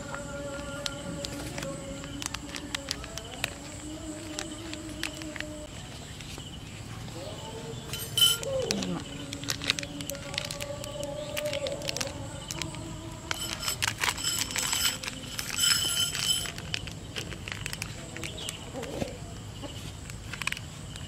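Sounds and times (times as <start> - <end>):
plastic snack packet crackling: 0.0 - 6.4, 7.1 - 21.0
metal spoon clinking on ceramic bowl: 7.9 - 8.7.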